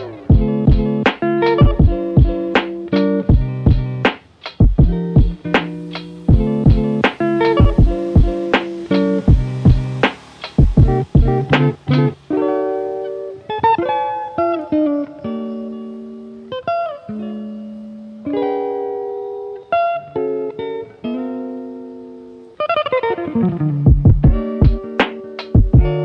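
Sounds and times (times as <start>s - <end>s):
plucked guitar: 0.0s - 26.0s
low drum hits: 4.6s - 8.7s, 9.3s - 12.1s, 23.9s - 24.9s.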